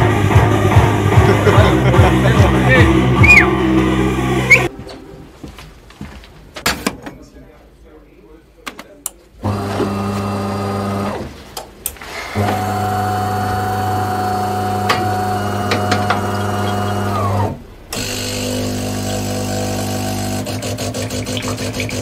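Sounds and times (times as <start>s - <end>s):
coffee machine motor hum: 12.3s - 22.0s.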